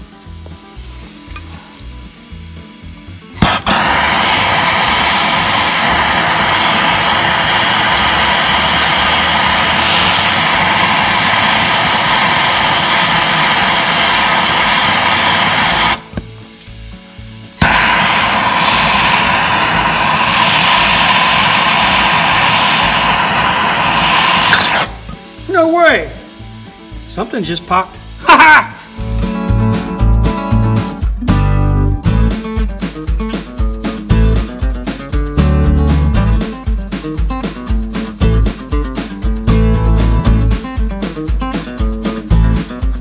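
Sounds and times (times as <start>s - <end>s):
gas torch hissing roar: 0.0s - 29.2s
torch igniter click: 3.4s - 16.3s, 17.6s - 25.2s.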